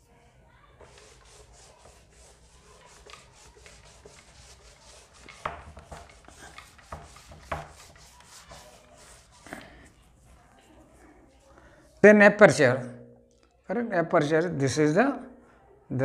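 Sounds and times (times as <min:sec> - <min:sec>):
hand rubbing a whiteboard: 0:00.8 - 0:10.9.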